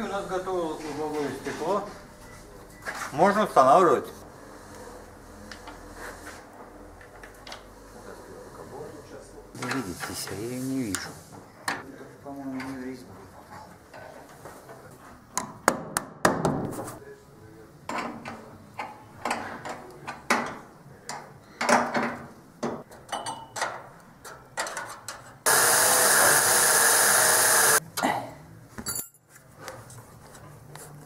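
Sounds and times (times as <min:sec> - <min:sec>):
tools knocking and scraping: 0:17.9 - 0:25.4.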